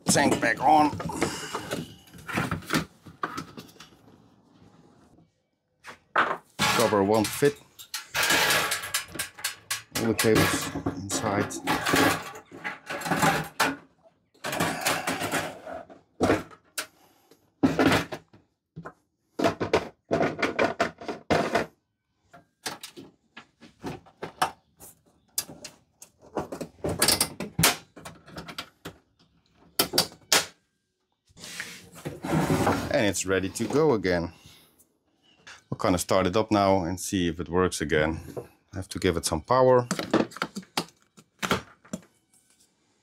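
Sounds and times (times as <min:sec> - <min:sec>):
metal cover knocking and rattling: 0:06.2 - 0:13.8.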